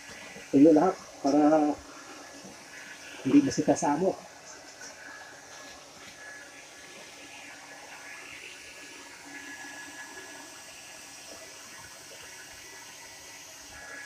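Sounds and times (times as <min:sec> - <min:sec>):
hair dryer running: 0:05.0 - 0:14.0.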